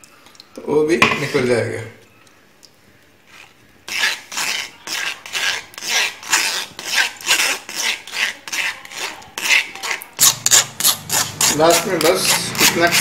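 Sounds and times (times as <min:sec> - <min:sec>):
spoon scraping mesh strainer: 0:03.3 - 0:13.0.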